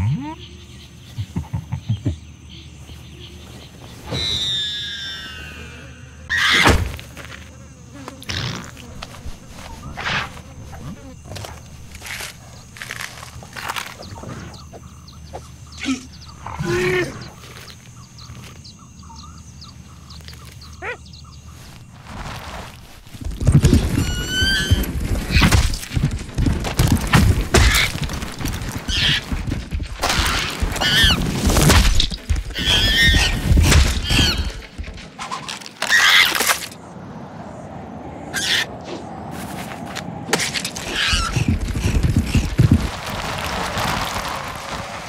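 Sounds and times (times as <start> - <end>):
monkey shrieks and cries: 4.1 - 6.7, 20.8 - 21.0, 23.8 - 25.4, 30.8 - 31.2, 32.5 - 34.6, 38.3 - 38.7, 40.9 - 41.5.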